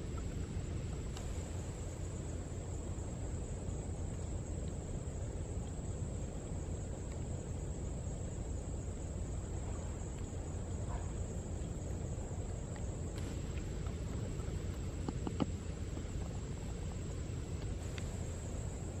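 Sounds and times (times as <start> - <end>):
insects trilling: 0.0 - 19.0
faint clicks: 0.1 - 1.7, 12.6 - 18.7
low rumble: 9.4 - 19.0.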